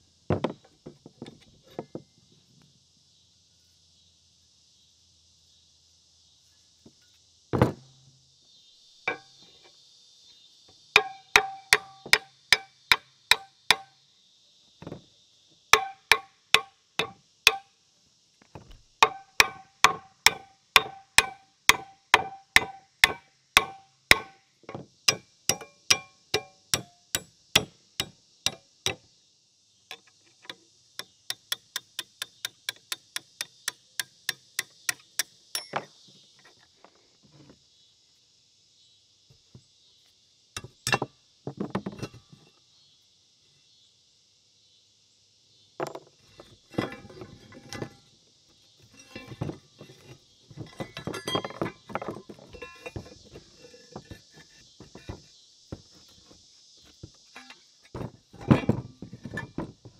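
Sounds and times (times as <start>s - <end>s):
hammer striking metal vise: 9.1s - 9.3s, 15.8s - 17.6s, 19.0s - 24.3s, 25.1s - 29.0s.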